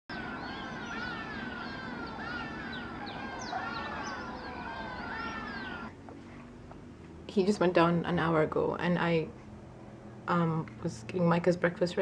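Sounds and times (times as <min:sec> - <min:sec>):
chorus of birds calling: 0:00.1 - 0:05.9.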